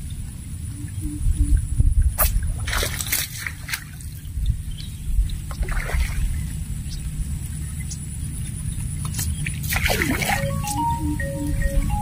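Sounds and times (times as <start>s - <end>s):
steady low rumble: 0.0s - 12.0s
floodwater splashing: 2.2s - 4.7s, 5.3s - 6.7s, 9.2s - 11.9s.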